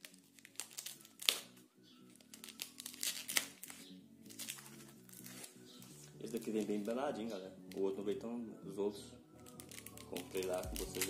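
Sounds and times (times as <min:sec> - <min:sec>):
foam wrapping crinkling and tearing: 0:00.0 - 0:07.0, 0:09.4 - 0:11.0
background music: 0:00.0 - 0:11.0.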